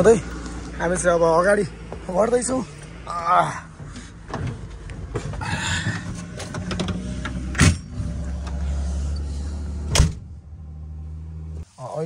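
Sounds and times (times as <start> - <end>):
truck engine droning: 0.0 - 11.6
rattles and clicks in cab: 3.7 - 8.6
loud thump: 9.9 - 10.3.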